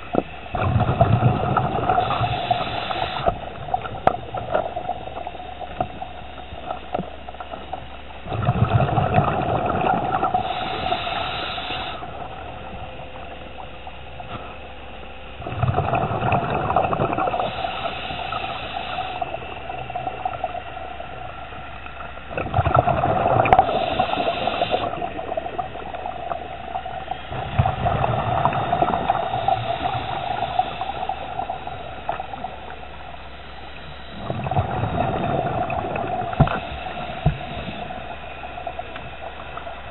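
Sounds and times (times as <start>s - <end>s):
exhaled bubbles underwater: 0.0s - 39.9s
diver breathing through regulator: 1.4s - 5.7s, 8.7s - 12.6s, 16.8s - 20.5s, 23.0s - 25.6s, 27.0s - 32.6s, 33.2s - 39.7s.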